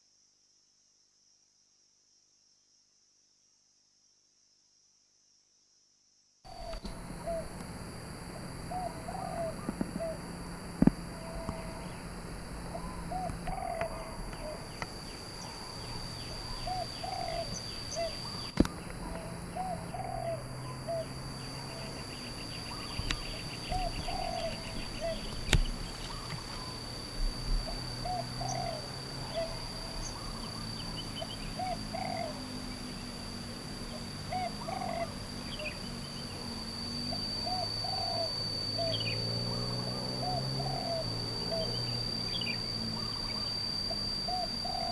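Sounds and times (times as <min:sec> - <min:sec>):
steady high-pitched whine: 0:06.4 - 0:44.9
dove cooing: 0:06.5 - 0:07.6, 0:08.4 - 0:32.8, 0:33.9 - 0:36.4, 0:37.0 - 0:44.9
sharp clicks: 0:24.8 - 0:26.5.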